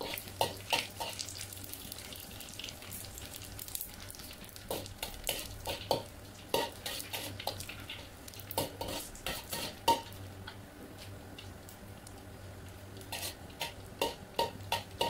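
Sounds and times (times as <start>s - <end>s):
frying sizzle: 0.0s - 15.0s
metal spatula scraping a wok: 6.5s - 7.6s, 8.8s - 10.0s, 13.1s - 14.2s.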